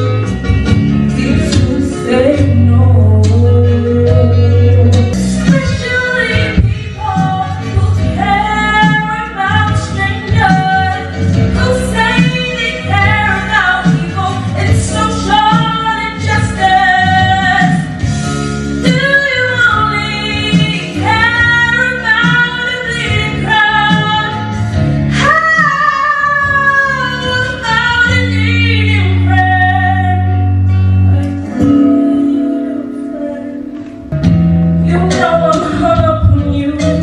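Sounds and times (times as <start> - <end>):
instrumental accompaniment: 0.0 - 37.0
girl singing: 18.9 - 24.4, 25.2 - 30.3, 34.9 - 37.0.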